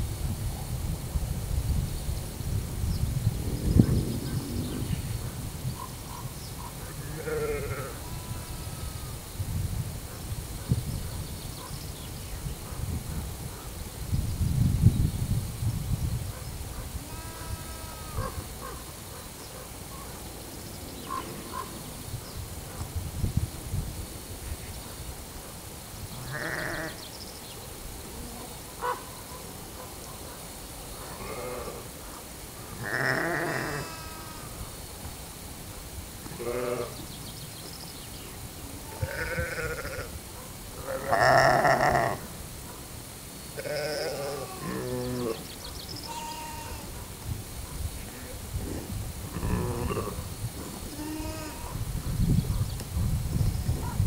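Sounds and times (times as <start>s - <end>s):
sheep bleating: 7.0s - 9.1s, 17.0s - 18.4s, 26.2s - 27.0s, 32.8s - 34.6s, 38.9s - 40.1s, 40.8s - 42.2s, 43.6s - 45.4s, 46.1s - 46.9s, 50.9s - 51.8s.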